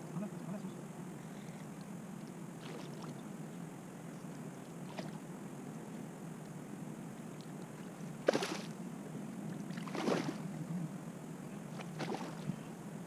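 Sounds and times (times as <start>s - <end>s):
fish splashing at surface: 8.3s - 8.7s, 9.8s - 10.4s.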